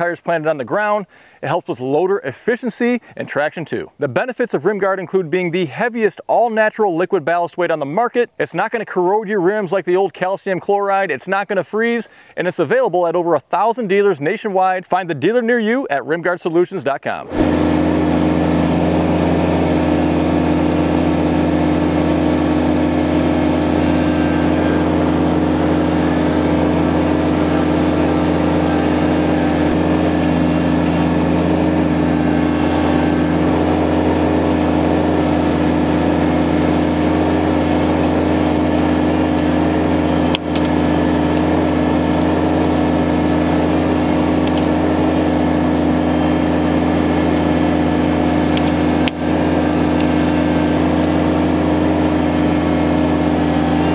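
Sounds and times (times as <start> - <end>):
tractor diesel engine running: 0.0 - 5.9, 17.2 - 53.9.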